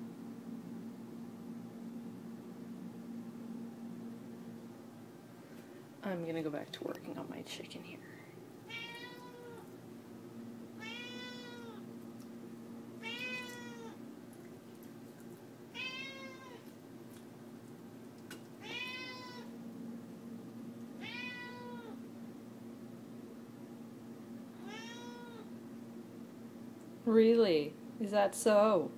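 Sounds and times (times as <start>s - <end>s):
low steady hum: 0.0s - 28.9s
cat meowing: 8.7s - 9.7s, 10.8s - 11.8s, 13.0s - 14.0s, 15.7s - 16.7s, 18.6s - 19.5s, 21.0s - 22.0s, 24.6s - 25.5s.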